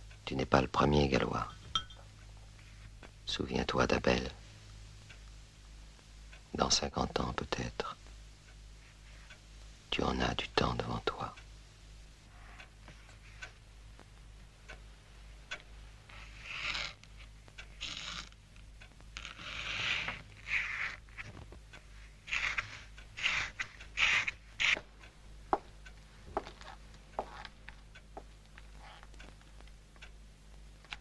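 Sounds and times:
low steady hum: 0.0s - 31.0s
pen scratching on paper: 16.2s - 17.0s, 19.4s - 21.3s, 22.3s - 24.9s
light ticks and taps: 24.7s - 31.0s.

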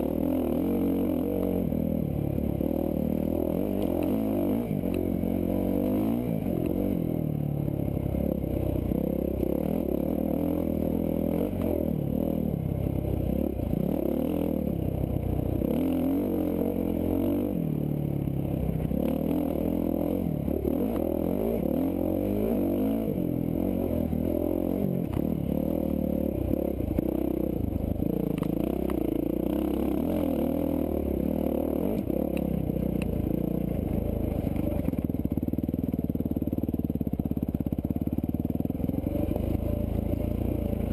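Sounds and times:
dirt bike engine revving: 18.9s - 32.5s.

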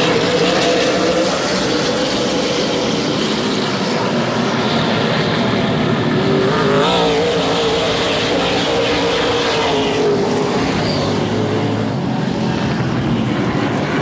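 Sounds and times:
race cars passing: 0.0s - 14.0s.

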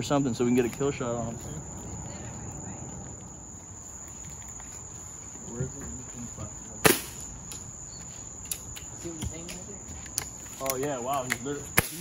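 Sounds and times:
night insects trilling: 0.0s - 12.0s
air rifle shot: 6.8s - 7.3s.

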